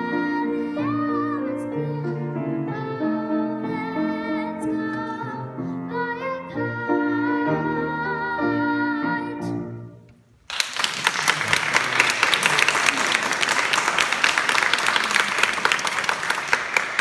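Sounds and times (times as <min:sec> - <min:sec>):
audience applause: 0:10.5 - 0:17.0.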